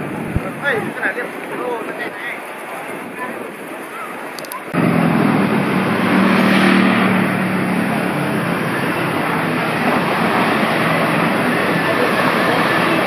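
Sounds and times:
traffic wash: 0.0 - 13.0
vehicle engine running close: 4.7 - 13.0.

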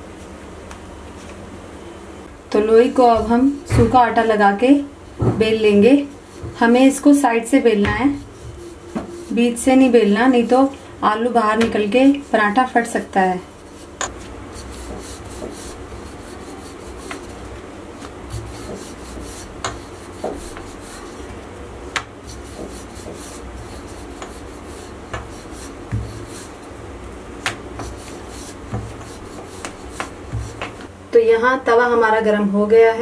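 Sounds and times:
rolling pin rubbing and scraping: 5.5 - 30.9.

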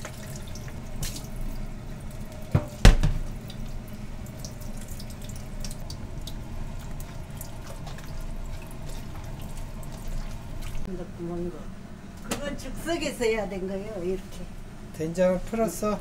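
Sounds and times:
water dripping and draining: 0.0 - 10.9
plastic bowl knocking on sink: 2.5 - 3.3.

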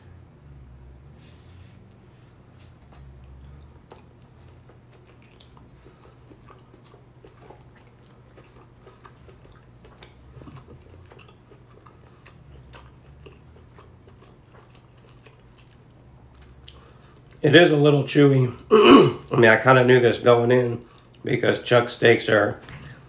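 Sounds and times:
low steady hum: 0.0 - 23.0
person chewing: 2.3 - 17.4, 20.8 - 21.2.

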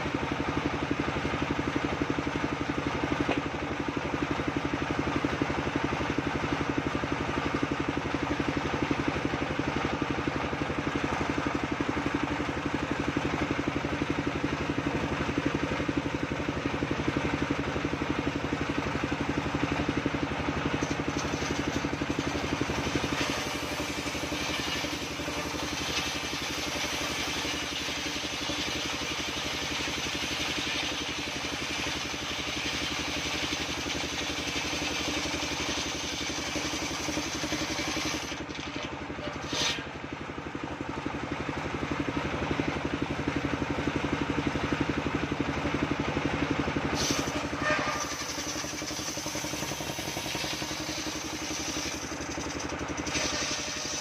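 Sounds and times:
table saw ripping wood: 20.8 - 39.9, 47.0 - 54.0.

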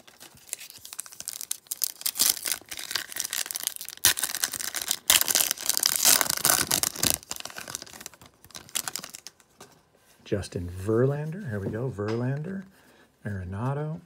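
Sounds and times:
foil wrapper crinkling and tearing: 0.0 - 9.4.

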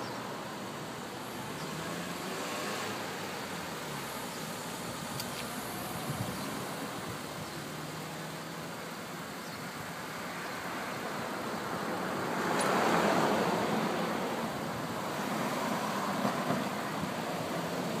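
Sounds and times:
road noise: 0.0 - 18.0
vehicle passing: 1.3 - 5.0.

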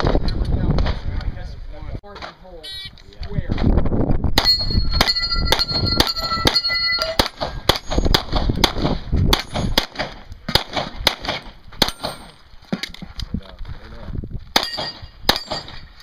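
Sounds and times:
steel plates clanging: 4.4 - 8.1
pistol shots: 4.4 - 12.4, 14.5 - 15.8.

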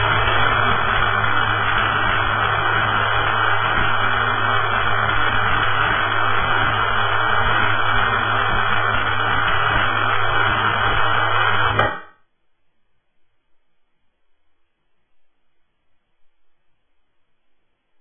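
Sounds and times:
low hum: 0.0 - 12.1
welding arc hissing buzz: 0.0 - 12.2.

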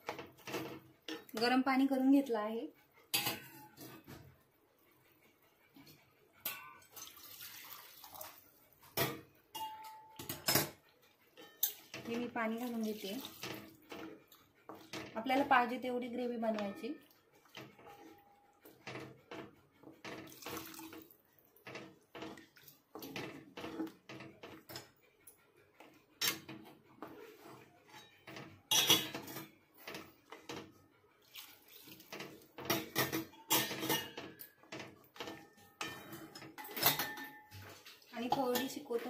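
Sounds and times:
spatula knocking and scraping pan: 0.0 - 2.2, 3.1 - 4.4, 11.4 - 25.0, 25.8 - 30.8, 32.0 - 39.0
liquid sloshing: 20.0 - 21.2.

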